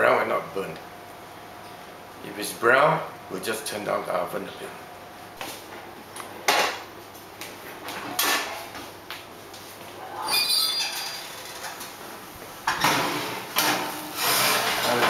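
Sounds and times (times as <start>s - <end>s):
roasting dish scraping on oven rack: 12.7s - 15.0s.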